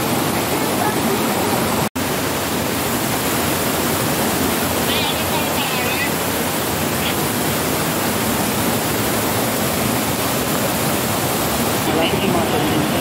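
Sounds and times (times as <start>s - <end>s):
mountain stream rushing over rocks: 0.0s - 13.0s.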